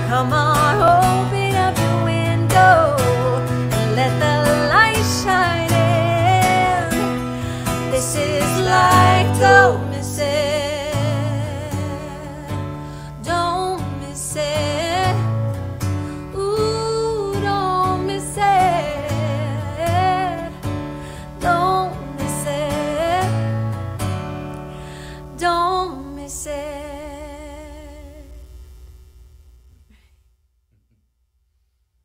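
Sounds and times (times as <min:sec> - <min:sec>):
woman singing with vibrato: 0:00.0 - 0:15.5, 0:16.2 - 0:20.6, 0:21.3 - 0:23.6, 0:25.3 - 0:28.4
strummed acoustic guitar: 0:00.0 - 0:25.9.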